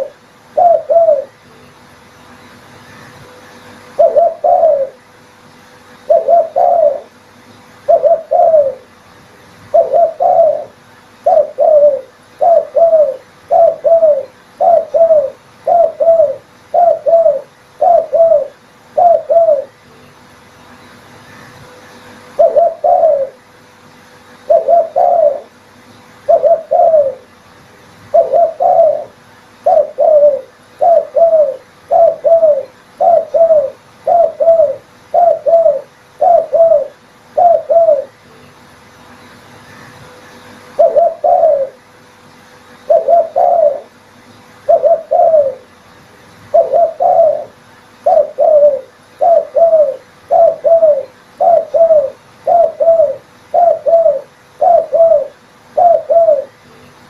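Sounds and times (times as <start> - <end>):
dove cooing: 0.0 - 1.6, 3.0 - 5.1, 6.0 - 7.2, 7.8 - 9.0, 9.7 - 19.8, 21.4 - 23.4, 24.3 - 25.6, 26.2 - 27.3, 28.1 - 38.2, 39.8 - 41.8, 42.8 - 44.0, 44.6 - 45.8, 46.5 - 56.7.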